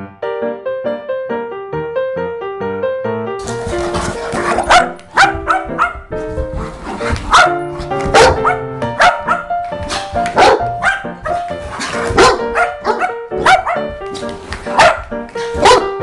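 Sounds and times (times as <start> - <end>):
background music with held notes: 0.0 - 16.0
dog barking: 3.9 - 6.1, 7.0 - 14.0, 14.7 - 16.0.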